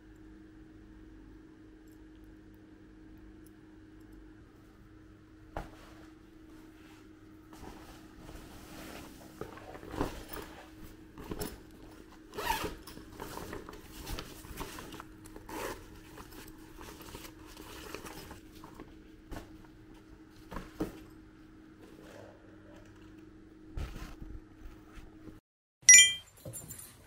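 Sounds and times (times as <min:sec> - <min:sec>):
fabric rustling: 0:05.6 - 0:11.4.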